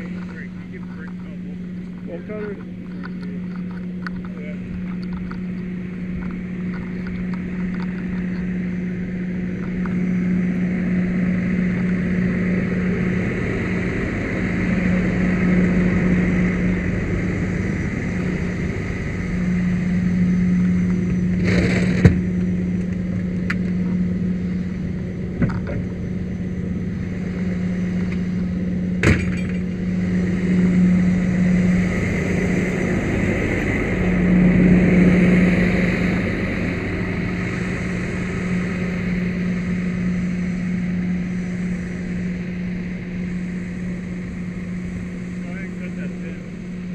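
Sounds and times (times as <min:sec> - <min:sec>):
engine humming steadily: 0:00.0 - 0:46.9.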